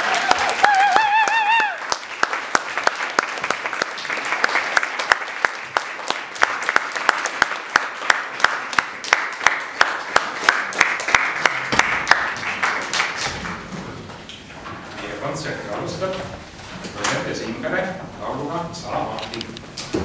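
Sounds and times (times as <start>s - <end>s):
nearby person clapping: 0.0s - 13.7s
audience applauding: 0.0s - 13.8s.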